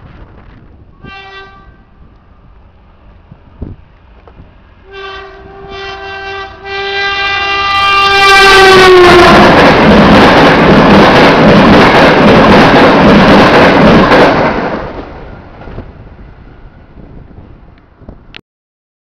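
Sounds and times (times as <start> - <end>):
train rumble: 0.0 - 18.4
locomotive air horn: 1.0 - 2.0, 4.8 - 9.6.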